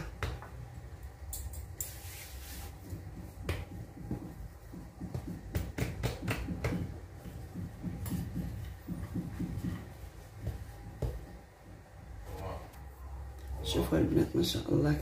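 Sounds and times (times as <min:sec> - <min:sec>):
hands patting pastry dough: 0:00.0 - 0:12.0
low steady hum: 0:00.0 - 0:15.0.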